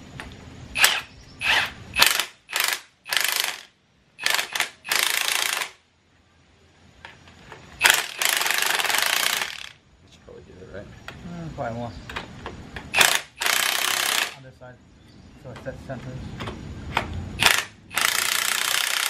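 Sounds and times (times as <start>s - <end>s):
impact wrench hammering: 17.4s - 19.0s.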